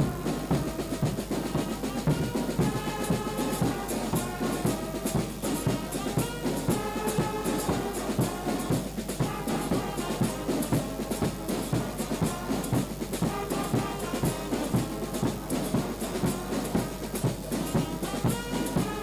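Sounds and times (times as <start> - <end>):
brass chords: 0.0 - 19.0
quick drum beat: 0.0 - 19.0.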